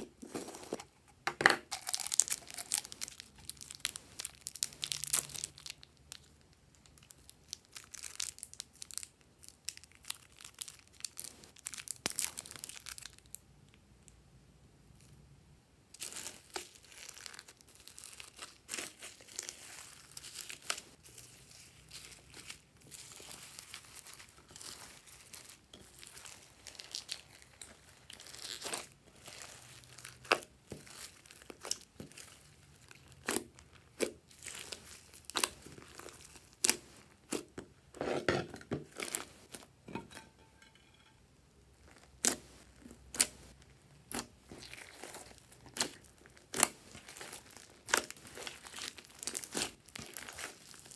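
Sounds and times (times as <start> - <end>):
slime squished by hand: 16.0 - 37.6, 41.9 - 50.9.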